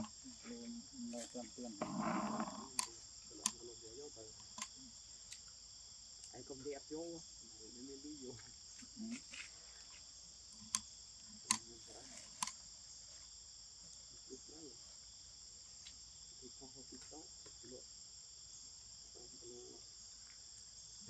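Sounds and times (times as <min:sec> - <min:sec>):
insects chirping: 0:00.0 - 0:21.0
sharp clicks: 0:02.4 - 0:03.7, 0:04.4 - 0:05.5, 0:10.6 - 0:12.6.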